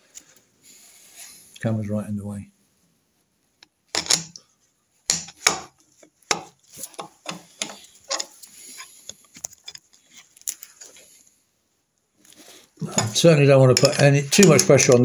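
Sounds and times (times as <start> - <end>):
metal levers knocking and scraping: 3.9 - 4.4, 5.1 - 5.7, 13.8 - 15.0.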